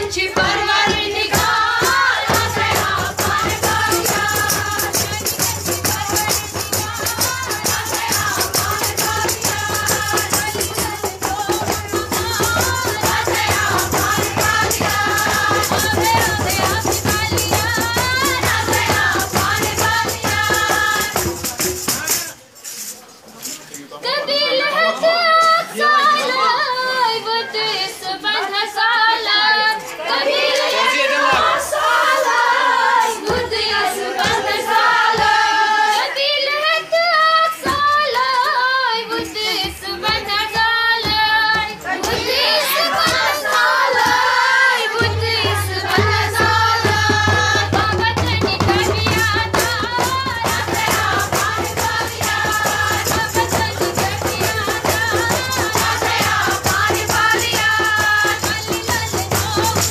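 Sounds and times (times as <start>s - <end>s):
woman singing folk song: 0.0s - 21.0s, 36.0s - 44.1s, 44.8s - 59.9s
rhythmic clapping: 0.0s - 23.5s, 29.7s - 59.9s.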